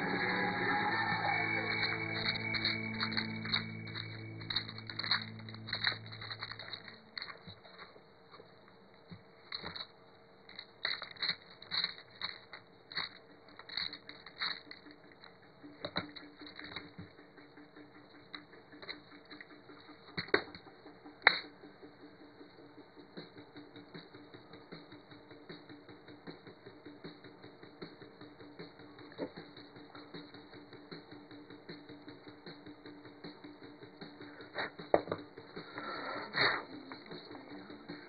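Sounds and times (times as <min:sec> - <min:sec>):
screws rattling in plastic box: 0:01.4 - 0:08.0, 0:09.5 - 0:20.7.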